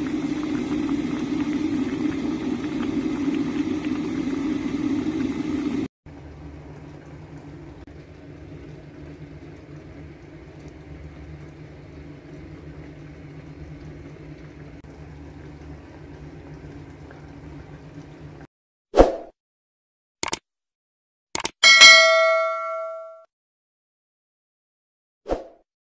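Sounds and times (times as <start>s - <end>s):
click sound effect: 20.2s - 20.4s, 21.4s - 23.2s.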